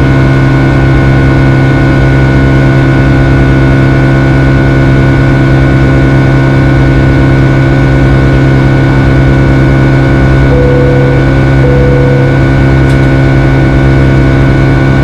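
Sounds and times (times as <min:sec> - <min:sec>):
aircraft cabin engine drone: 0:00.0 - 0:15.0.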